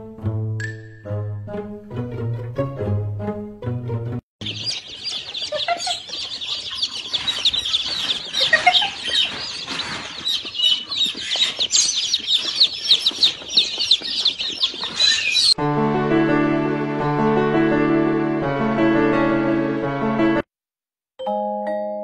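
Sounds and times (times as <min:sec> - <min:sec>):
plucked string music: 0:00.0 - 0:04.2
chicks peeping: 0:04.4 - 0:15.6.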